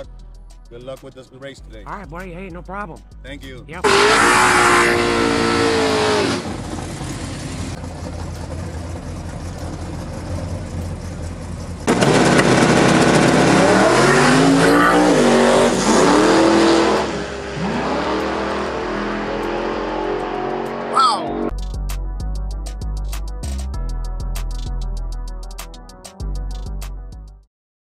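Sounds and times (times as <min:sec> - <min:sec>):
truck engine rumbling and revving: 0:01.6 - 0:23.8.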